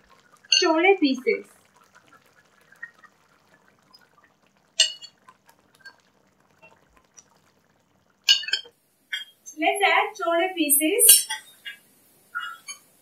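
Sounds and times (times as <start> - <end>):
curry bubbling at a simmer: 0.0 - 13.0
steel ladle clinking on cookware: 4.8 - 5.1, 8.3 - 9.3.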